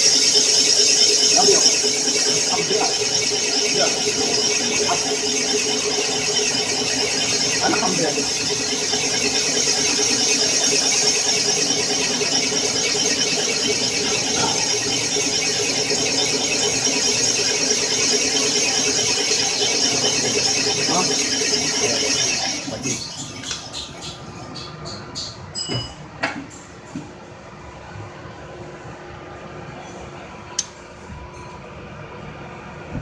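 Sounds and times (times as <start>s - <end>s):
boring cutter high-pitched squeal: 0.0s - 24.2s
machine running: 0.0s - 25.4s.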